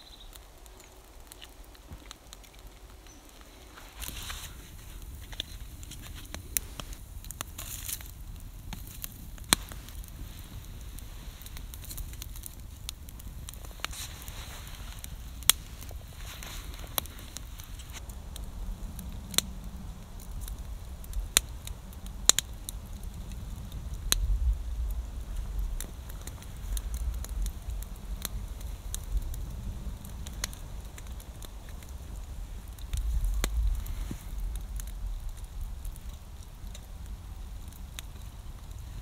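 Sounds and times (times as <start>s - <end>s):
campfire crackling and popping: 0.0s - 39.0s
low rumble: 4.1s - 38.8s.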